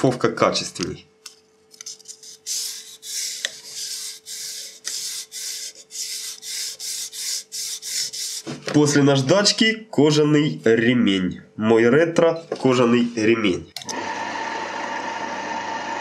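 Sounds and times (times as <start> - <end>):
sandpaper rubbing on wood: 2.0 - 8.6.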